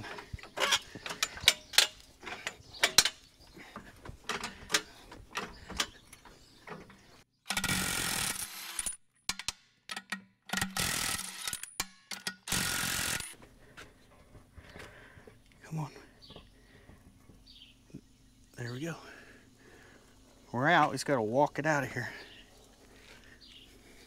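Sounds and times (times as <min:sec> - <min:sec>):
jack pumping clicks: 0:00.0 - 0:13.4
impact wrench spinning lug nuts: 0:07.5 - 0:09.5, 0:10.6 - 0:13.4.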